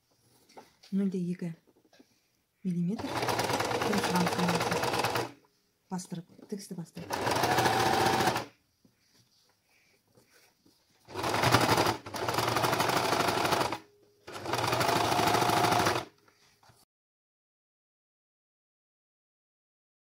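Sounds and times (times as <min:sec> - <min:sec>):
sewing machine stitching: 0:03.0 - 0:05.4, 0:07.0 - 0:08.5, 0:11.1 - 0:16.1.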